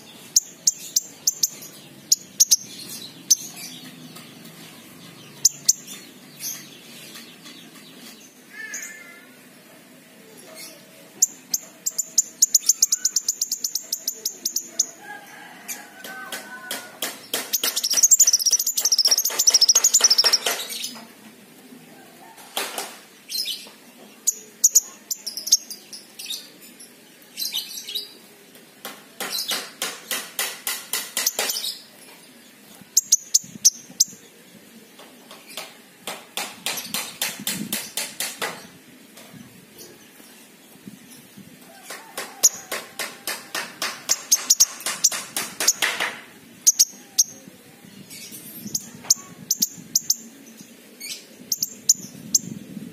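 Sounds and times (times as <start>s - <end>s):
songbird trilling: 11.3s - 15.0s, 17.6s - 20.7s.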